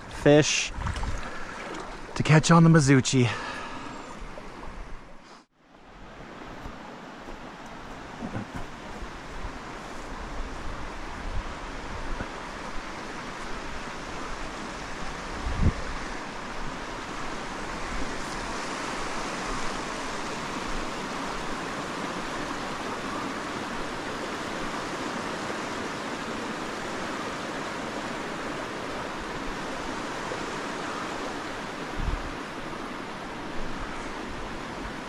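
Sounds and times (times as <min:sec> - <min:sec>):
creek rushing over rocks: 0:00.0 - 0:04.8.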